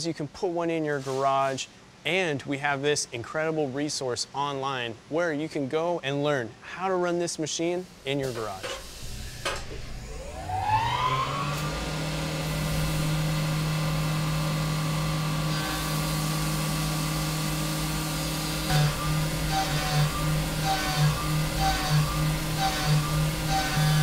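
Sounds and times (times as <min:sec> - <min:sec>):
mill spindle whining: 0:08.6 - 0:24.0
coolant spray hissing: 0:12.0 - 0:24.0.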